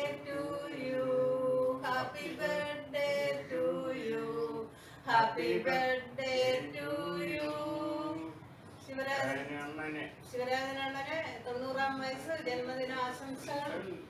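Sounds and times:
man and woman singing: 0.0s - 8.5s.

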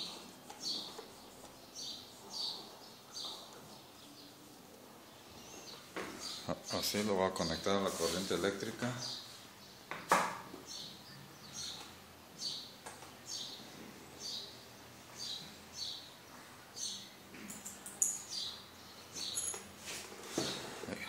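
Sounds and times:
bird chirping: 0.0s - 4.5s, 10.6s - 14.6s.

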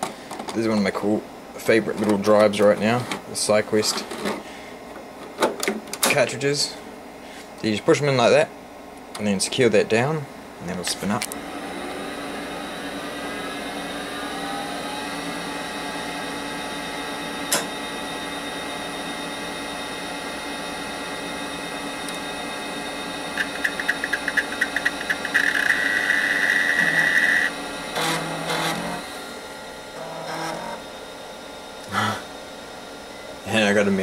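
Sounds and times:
computer humming: 10.6s - 34.0s
disk drive whine: 11.2s - 34.0s
rapid ticks and harsh buzz: 23.4s - 27.5s.

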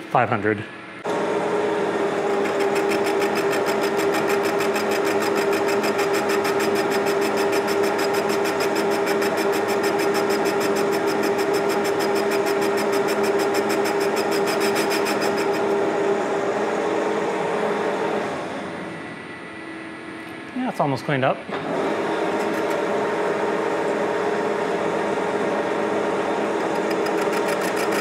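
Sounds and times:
lathe humming: 1.1s - 18.3s
rapid ticking of cutting tool: 2.3s - 15.6s, 26.6s - 28.0s.

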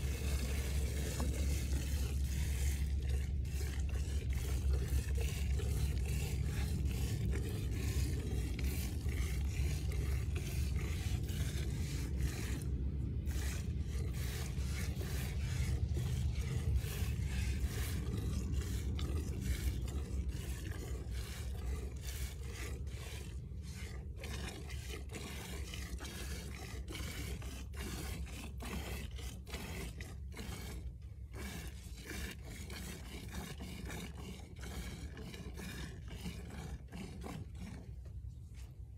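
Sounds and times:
steady low rumble: 0.0s - 26.6s
milk squirting into steel pail: 0.0s - 38.4s.

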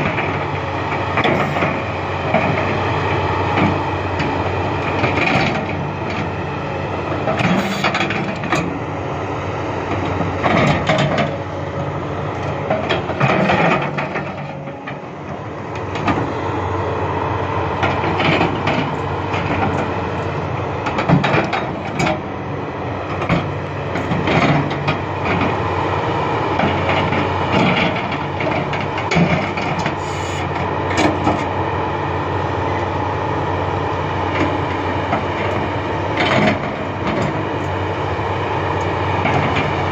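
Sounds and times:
excavator diesel engine under load: 0.0s - 39.9s
excavator bucket clanking: 10.0s - 11.4s, 12.5s - 15.0s, 17.8s - 22.3s, 35.2s - 37.4s.

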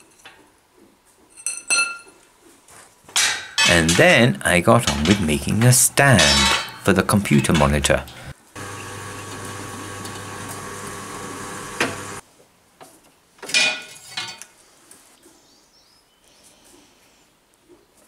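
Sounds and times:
metallic clatter: 4.8s - 7.8s
pillar drill motor humming: 8.0s - 12.2s.

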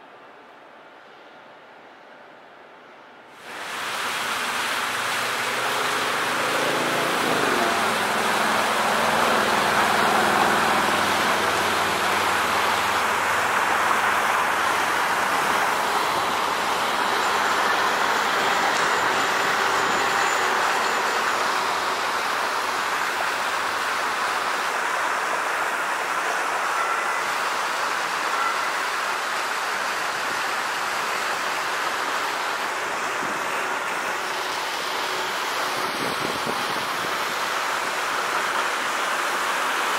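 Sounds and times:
streetcar rolling on track: 0.0s - 39.9s
cars passing: 3.4s - 28.5s
engine rising in pitch: 3.4s - 28.9s.

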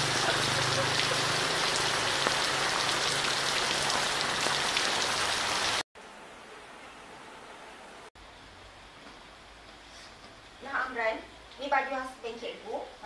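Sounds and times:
rain pouring: 0.0s - 9.7s.

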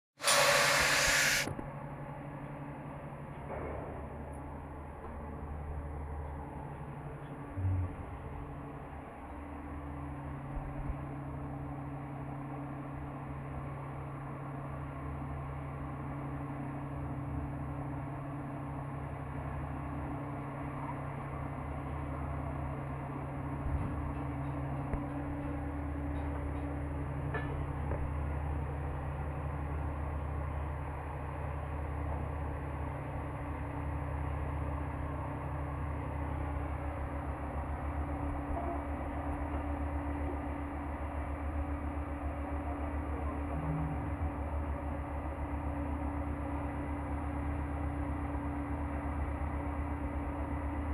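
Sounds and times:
heavy machinery humming: 0.2s - 1.7s, 4.0s - 11.1s, 20.4s - 50.9s.

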